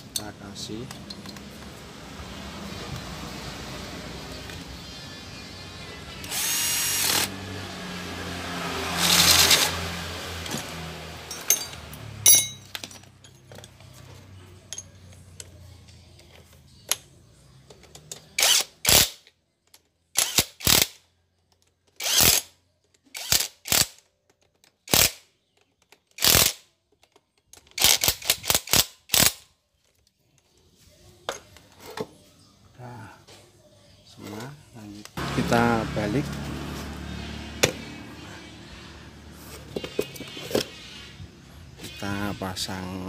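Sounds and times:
cordless drill driving bolts: 0:06.2 - 0:07.3, 0:09.0 - 0:09.8, 0:22.0 - 0:22.5.

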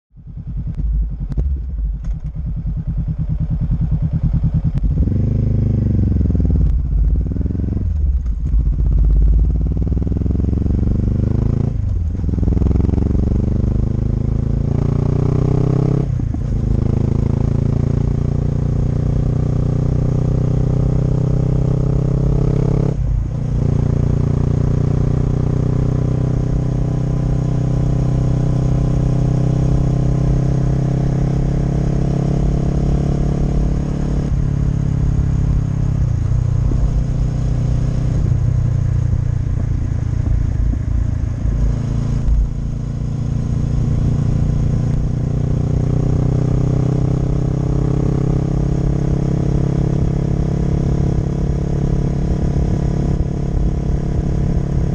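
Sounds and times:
motorcycle accelerating and shifting: 0:00.1 - 0:54.9.

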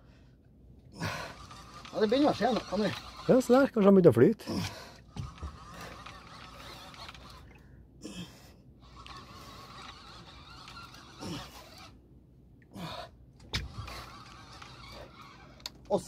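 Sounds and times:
fishing reel whirring: 0:01.0 - 0:03.7, 0:05.0 - 0:07.6, 0:08.8 - 0:12.0, 0:12.8 - 0:16.0
low grunts of effort: 0:04.4 - 0:04.9, 0:12.7 - 0:13.1.

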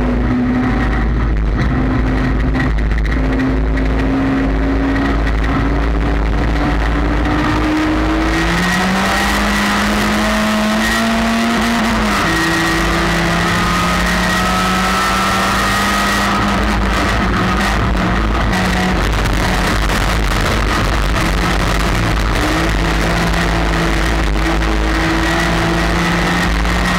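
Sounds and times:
race car engine: 0:00.0 - 0:26.9
rough clattering noise: 0:00.8 - 0:06.9.

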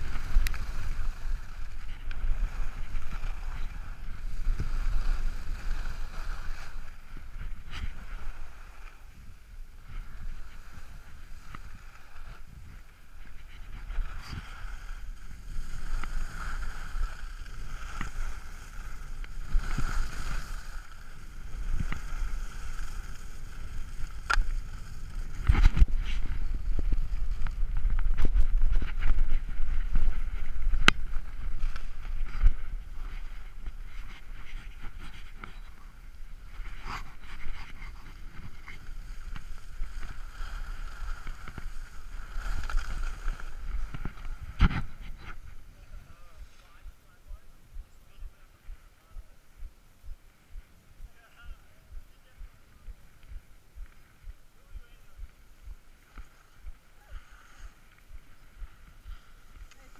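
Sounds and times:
skis scraping on snow: 0:00.0 - 0:47.4, 0:50.6 - 0:59.9.

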